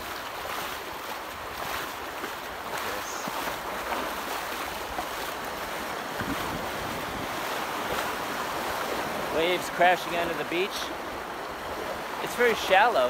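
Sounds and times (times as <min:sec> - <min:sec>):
waves washing onto beach: 0:00.0 - 0:13.0
wind on microphone: 0:02.8 - 0:09.3.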